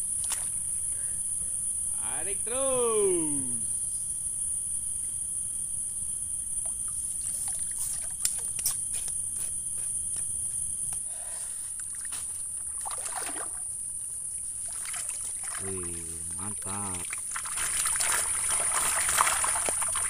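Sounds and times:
high insect drone: 0:00.0 - 0:20.0
water splashing and trickling: 0:06.6 - 0:08.6, 0:11.8 - 0:20.0.

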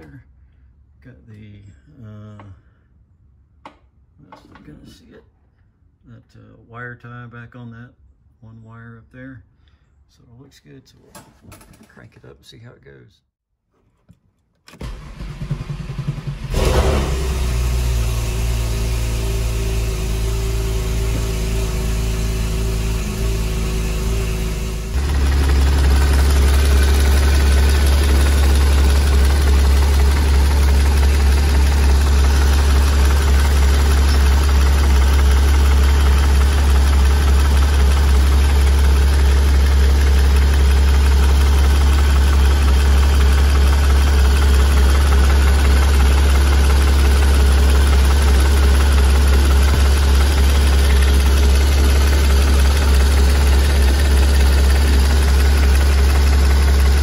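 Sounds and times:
car engine idling: 0:14.8 - 0:57.0.

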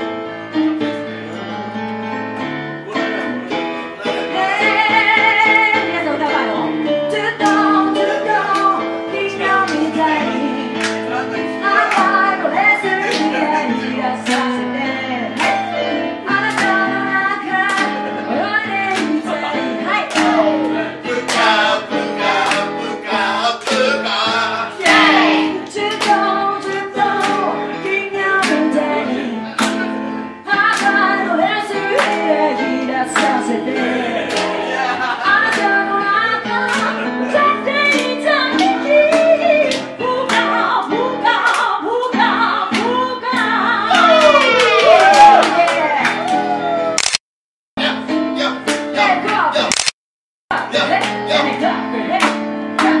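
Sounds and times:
electric keyboard chords: 0:00.0 - 0:47.0, 0:47.8 - 0:49.7, 0:50.5 - 0:53.0
woman singing into a microphone: 0:04.1 - 0:10.8, 0:11.6 - 0:15.6, 0:16.2 - 0:20.7, 0:24.8 - 0:29.5, 0:30.5 - 0:34.2, 0:35.2 - 0:46.2, 0:50.5 - 0:53.0.

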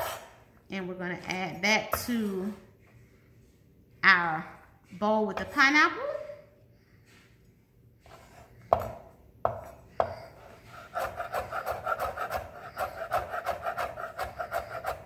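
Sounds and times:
knife chopping on cutting board: 0:08.1 - 0:15.0.

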